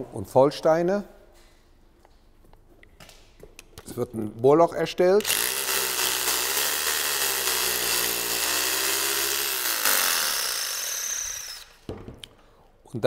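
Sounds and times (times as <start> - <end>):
hammer drill boring into masonry: 5.2 - 11.9.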